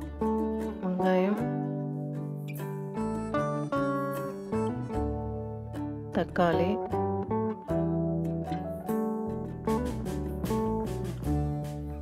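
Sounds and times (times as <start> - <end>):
plucked guitar music: 0.0 - 12.0.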